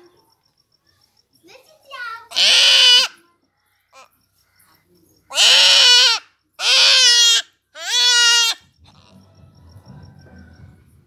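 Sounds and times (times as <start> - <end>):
young goat bleating: 2.3 - 3.2, 5.3 - 9.2.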